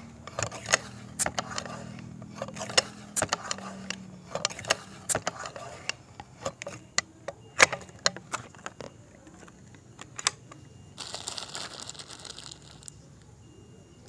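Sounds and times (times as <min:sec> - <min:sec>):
air rifle pump clicks: 0:00.3 - 0:08.2
plastic wrapper crinkling: 0:11.0 - 0:13.0.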